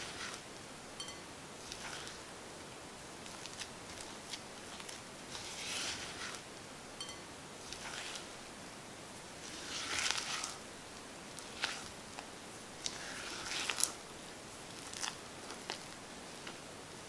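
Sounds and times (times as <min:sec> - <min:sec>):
spatula scraping batter: 0:00.0 - 0:00.4, 0:01.0 - 0:02.2, 0:03.2 - 0:08.4, 0:09.4 - 0:10.6, 0:11.4 - 0:14.0.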